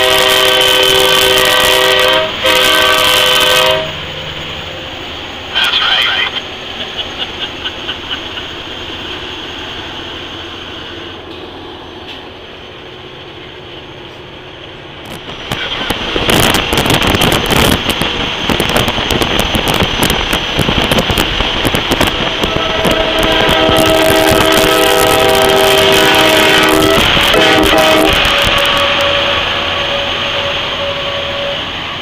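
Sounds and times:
air horn blast: 0.0s - 4.0s, 22.2s - 31.7s
truck engine and road noise: 1.7s - 22.7s
wind buffeting microphone: 15.1s - 29.1s.

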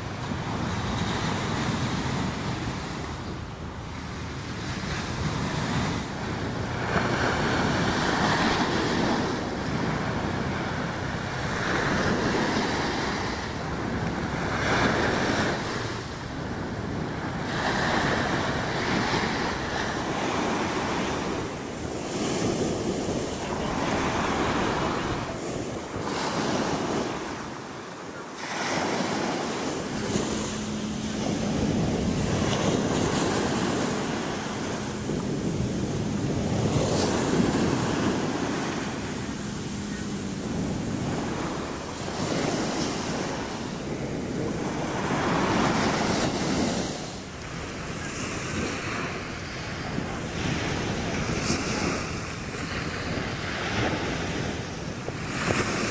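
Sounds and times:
surf breaking on beach: 0.0s - 55.9s
wind buffeting microphone: 0.0s - 55.9s.

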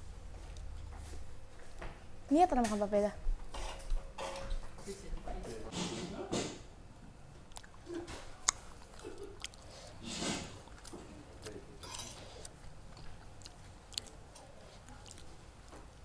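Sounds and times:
soft chewing: 0.0s - 2.0s, 7.2s - 16.0s
cutlery clinking against bowls: 3.5s - 4.6s, 11.8s - 12.3s.

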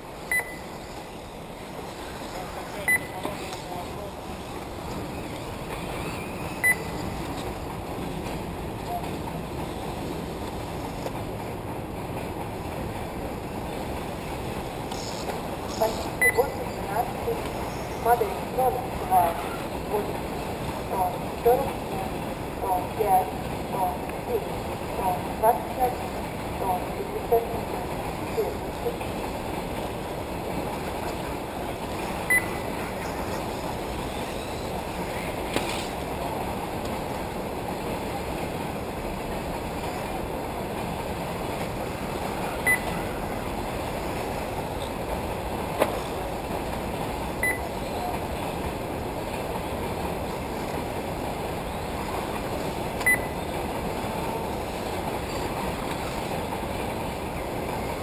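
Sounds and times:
short high beeps: 0.3s - 0.8s, 2.8s - 3.3s, 6.2s - 7.1s, 16.2s - 16.6s, 32.3s - 32.6s, 42.7s - 42.9s, 47.4s - 47.7s, 53.1s - 53.4s.

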